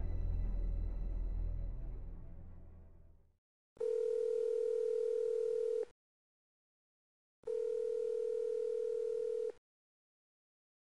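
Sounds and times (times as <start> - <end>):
music track: 0.0 - 3.2
telephone ringing tone: 3.8 - 5.9, 7.5 - 9.6.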